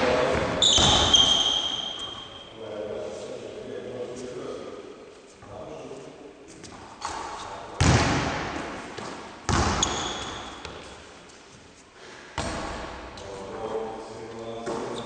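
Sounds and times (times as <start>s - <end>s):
basketball bangs echoing in gym: 0.0s - 2.6s, 6.6s - 11.2s, 12.3s - 13.9s, 14.5s - 15.0s
brief high squeak: 0.6s - 2.5s.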